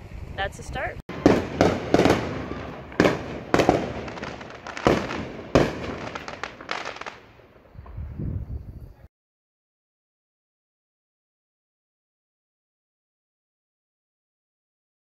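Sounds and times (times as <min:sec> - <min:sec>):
fireworks bangs: 0:01.1 - 0:08.2.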